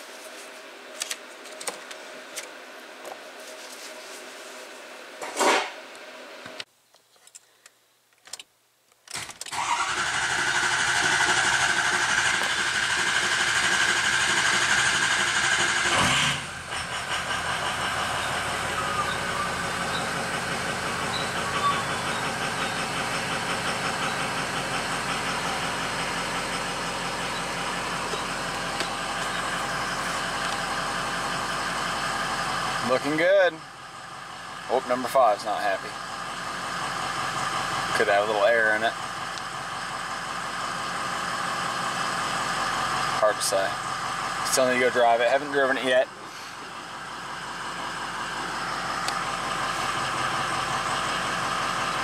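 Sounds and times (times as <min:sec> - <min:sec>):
diesel engine cranking on starter: 0:09.1 - 0:45.0, 0:45.6 - 0:52.0
diesel engine idling: 0:09.5 - 0:52.0.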